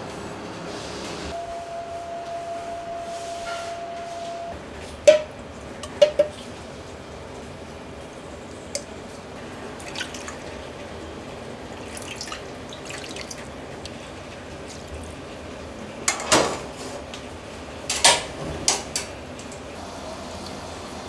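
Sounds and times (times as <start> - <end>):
metal clanks of pots and ladle: 5.1 - 6.4
liquid dripping and splashing: 9.8 - 10.6, 11.7 - 14.0.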